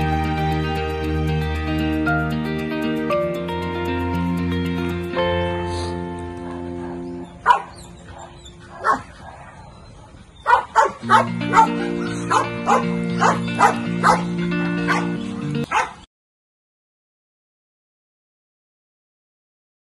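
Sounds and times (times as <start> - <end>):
background music: 0.0 - 9.2, 10.6 - 16.0
dog barking: 6.4 - 16.1.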